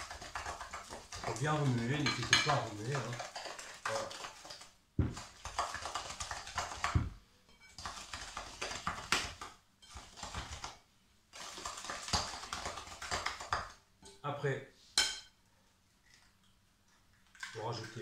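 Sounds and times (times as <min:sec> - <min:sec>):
utensil knocking on bowl: 0:00.0 - 0:04.2, 0:05.0 - 0:07.2
utensil scraping a bowl: 0:00.0 - 0:06.9.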